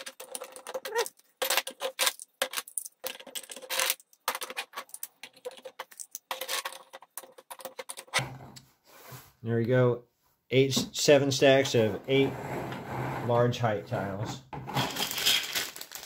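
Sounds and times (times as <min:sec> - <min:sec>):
plastic blocks clicking and clattering: 0:00.0 - 0:08.2, 0:14.8 - 0:16.0.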